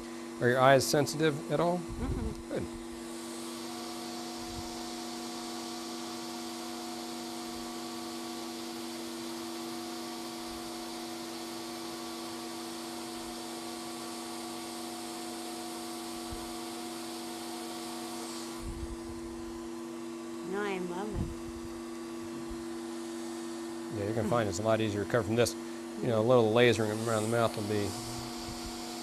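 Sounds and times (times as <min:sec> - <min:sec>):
machine hum: 0:17.9 - 0:29.0
suction airy rush: 0:26.8 - 0:29.0.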